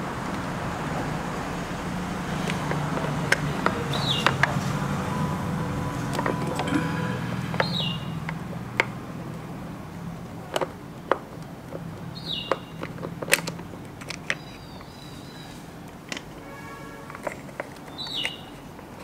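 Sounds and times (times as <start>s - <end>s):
bird chirping: 3.7s - 4.4s, 5.2s - 8.4s, 12.1s - 13.0s, 14.2s - 15.7s, 17.8s - 18.7s
screwdriver and plastic parts clicking: 10.5s - 14.9s, 17.1s - 19.0s.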